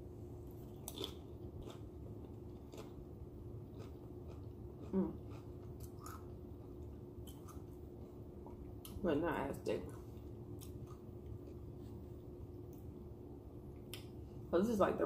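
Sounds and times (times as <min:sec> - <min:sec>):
chewing food: 0:00.5 - 0:09.0, 0:09.9 - 0:12.9.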